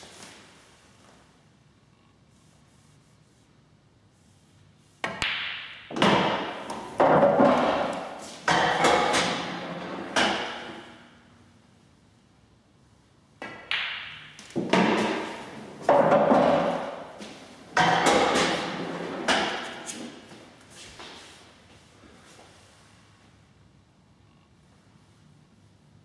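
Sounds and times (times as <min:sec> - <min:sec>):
cue tip striking ball: 0:05.0 - 0:11.0, 0:13.4 - 0:17.2, 0:17.8 - 0:19.8
pool balls knocking and rolling: 0:05.0 - 0:11.2, 0:13.4 - 0:20.4.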